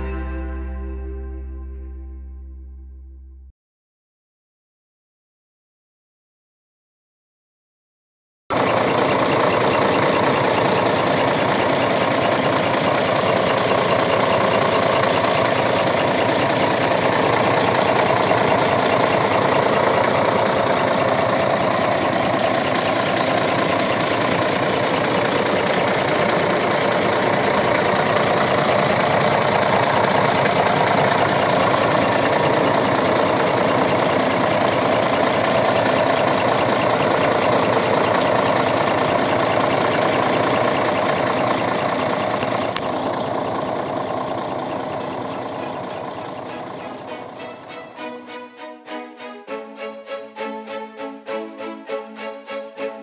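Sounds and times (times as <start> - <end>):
diesel truck engine running: 8.5 - 48.5.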